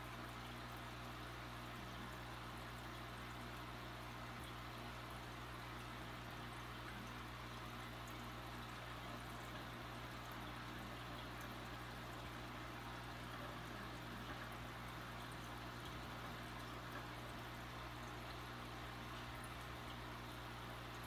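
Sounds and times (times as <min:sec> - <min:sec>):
aquarium air stone bubbling: 0:00.0 - 0:21.0
low steady hum: 0:00.0 - 0:21.0.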